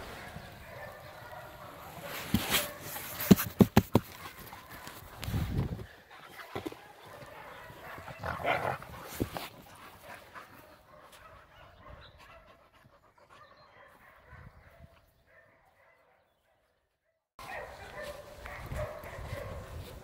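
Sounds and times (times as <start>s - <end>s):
dogs breathing and playing: 0.1s - 14.0s.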